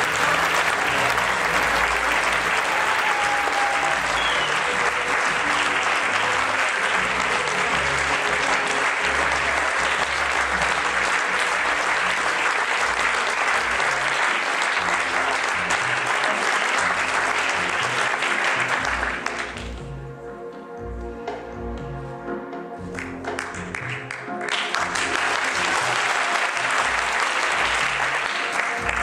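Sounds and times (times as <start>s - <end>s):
audience applauding: 0.0s - 19.8s, 22.9s - 29.0s
music: 0.0s - 29.0s.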